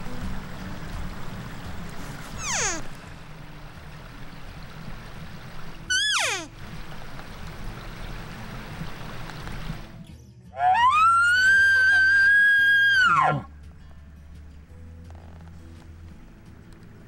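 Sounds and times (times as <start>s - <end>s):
elk bugle call: 5.9s - 6.5s.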